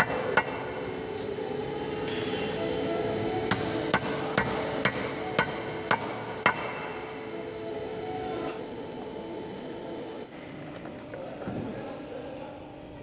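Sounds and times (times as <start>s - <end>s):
hammer striking steel: 0.0s - 2.9s, 3.5s - 6.9s.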